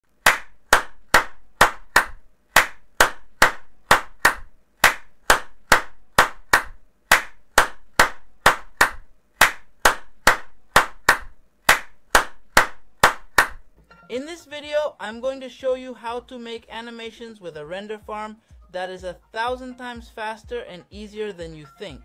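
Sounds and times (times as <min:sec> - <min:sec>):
hand claps: 0:00.1 - 0:13.8.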